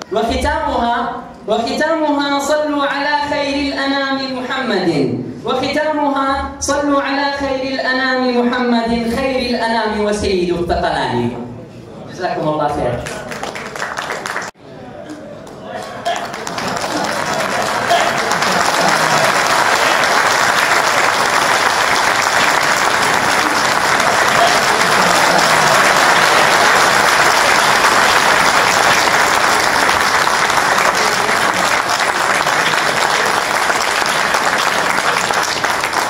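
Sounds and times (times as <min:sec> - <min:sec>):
audience applauding: 0:13.0 - 0:14.6, 0:15.8 - 0:36.0.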